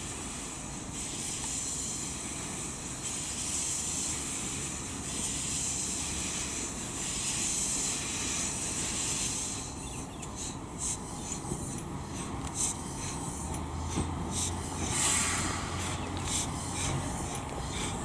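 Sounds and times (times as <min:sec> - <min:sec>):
steam hissing from locomotive: 0:00.0 - 0:18.0.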